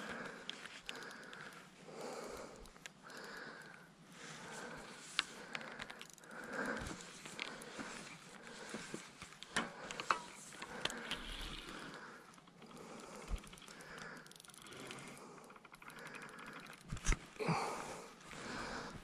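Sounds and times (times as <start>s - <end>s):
hands rustling fishing tackle: 0.0s - 19.0s
small clicks and sharp taps: 5.0s - 17.3s.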